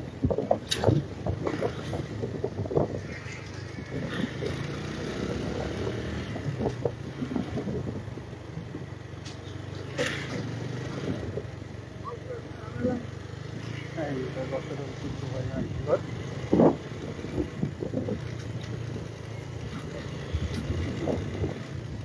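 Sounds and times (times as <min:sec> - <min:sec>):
wind on microphone: 0:00.0 - 0:09.0, 0:15.0 - 0:22.0
motorcycle engine running: 0:00.9 - 0:22.0.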